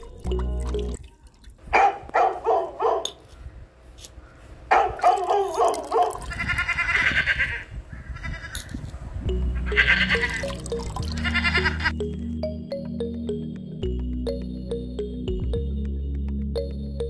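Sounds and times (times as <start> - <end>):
dog barking: 1.7 - 3.2, 4.7 - 6.2.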